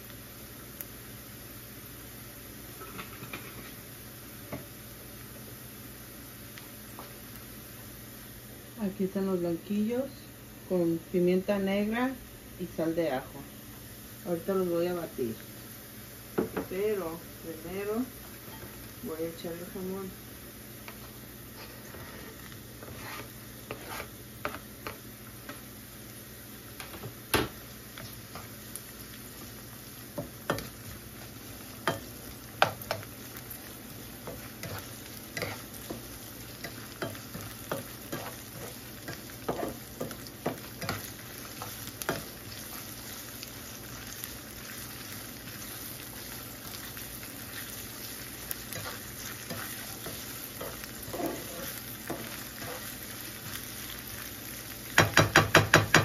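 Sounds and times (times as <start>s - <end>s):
vegetables sizzling in a skillet: 0.0s - 56.0s
spatula scraping and clacking pan: 2.8s - 3.8s, 21.6s - 25.0s, 34.2s - 42.9s, 48.4s - 53.6s.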